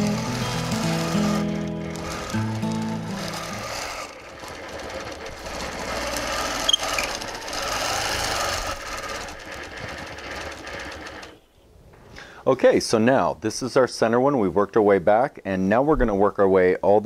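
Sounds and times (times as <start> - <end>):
quilting machine stitching: 0.0 - 11.4.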